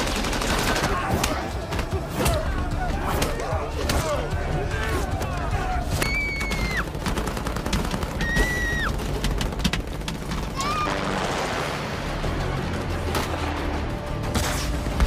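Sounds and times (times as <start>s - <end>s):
rapid gunfire cracks: 0.0s - 11.2s
film trailer music: 0.0s - 15.0s.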